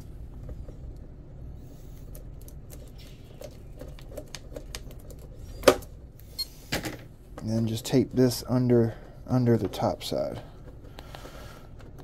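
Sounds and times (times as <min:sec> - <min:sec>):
small clicks and crackles of tape: 0:02.0 - 0:05.2.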